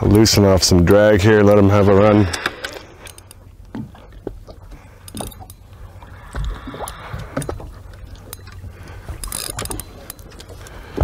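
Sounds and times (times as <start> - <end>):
water lapping against boat hull: 0.0 - 11.0.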